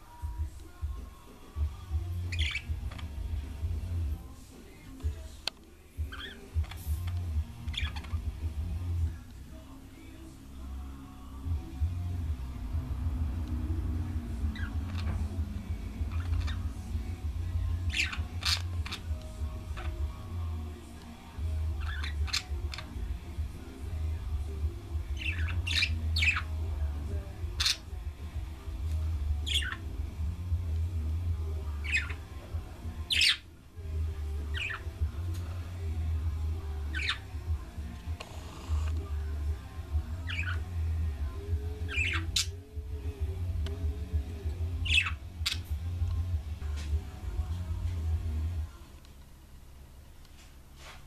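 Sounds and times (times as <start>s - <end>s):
steady low hum: 0.0s - 51.0s
budgerigars chirping: 1.7s - 3.6s, 6.1s - 8.4s, 12.8s - 20.4s, 21.7s - 23.4s, 25.0s - 26.8s, 27.5s - 28.1s, 29.3s - 30.1s, 31.6s - 32.4s, 33.0s - 33.4s, 34.5s - 35.2s, 36.7s - 37.3s, 40.2s - 40.9s, 41.7s - 42.6s, 44.3s - 45.9s.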